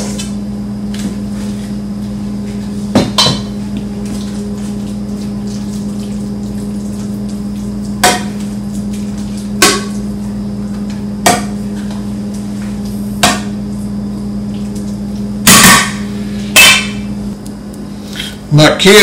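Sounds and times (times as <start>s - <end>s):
low electrical hum: 0.0s - 19.0s
dishware clattering: 3.0s - 3.6s
utensils knocking on dishware: 3.0s - 3.6s.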